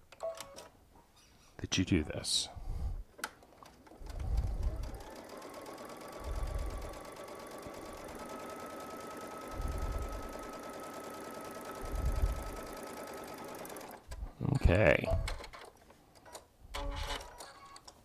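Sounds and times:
sewing machine stitching: 0:03.6 - 0:14.2.

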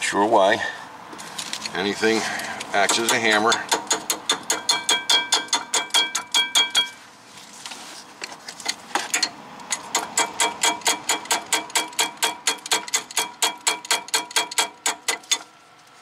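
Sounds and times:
metal-on-metal tapping: 0:02.7 - 0:07.0, 0:08.6 - 0:15.4.

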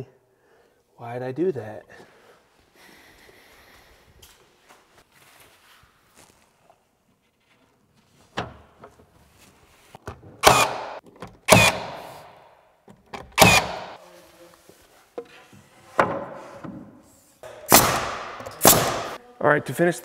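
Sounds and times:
nail gun firing: 0:10.4 - 0:12.3, 0:13.4 - 0:14.0, 0:17.7 - 0:19.2
nail gun whir: 0:10.4 - 0:12.4, 0:13.4 - 0:14.0, 0:17.7 - 0:19.2.

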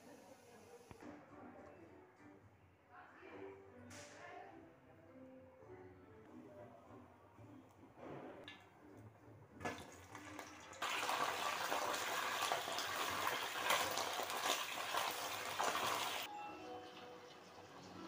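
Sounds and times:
eggplants sizzling in hot oil: 0:10.6 - 0:16.3.

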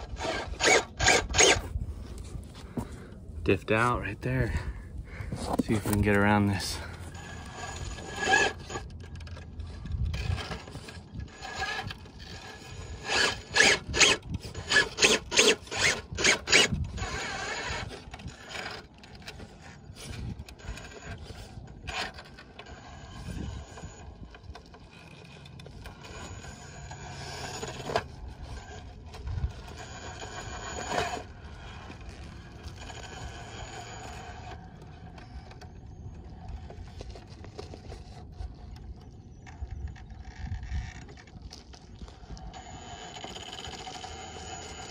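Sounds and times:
faint high drivetrain whine: 0:00.0 - 0:44.9
tires scraping against rock: 0:00.0 - 0:44.9.

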